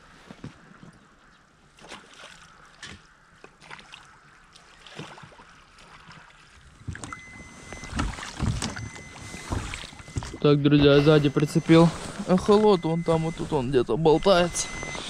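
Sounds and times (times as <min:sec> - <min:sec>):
oars dipping and splashing: 0:00.2 - 0:15.0
oars knocking: 0:06.8 - 0:14.9.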